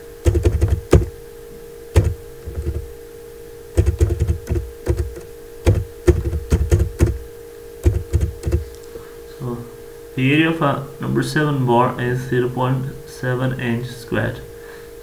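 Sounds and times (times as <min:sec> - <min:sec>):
steady low hum: 0:00.0 - 0:15.0
computer keyboard typing: 0:00.2 - 0:01.1, 0:02.0 - 0:02.8, 0:03.8 - 0:07.2, 0:07.8 - 0:08.8.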